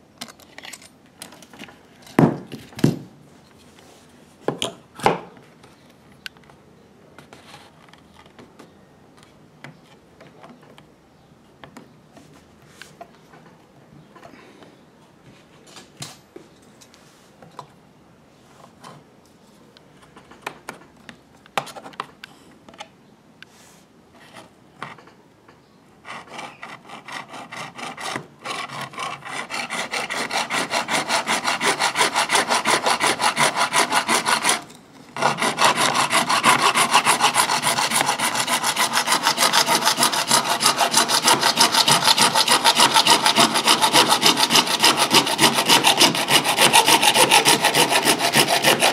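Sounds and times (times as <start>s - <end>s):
hacksaw cutting plastic pipe: 26.1s - 48.9s.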